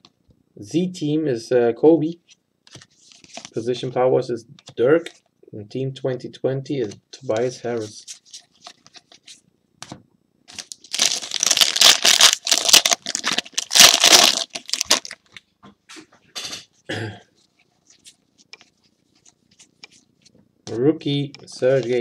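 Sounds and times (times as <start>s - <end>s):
foil wrapper crinkling and tearing: 10.5s - 15.3s.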